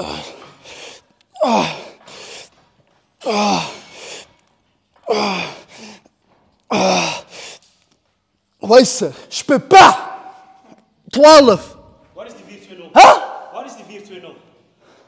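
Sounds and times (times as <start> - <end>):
man breathing hard with effort: 0.0 - 6.2, 6.8 - 7.8.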